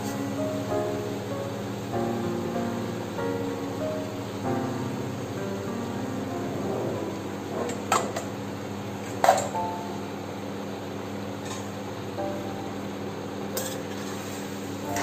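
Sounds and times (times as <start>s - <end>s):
background music: 0.0s - 7.6s.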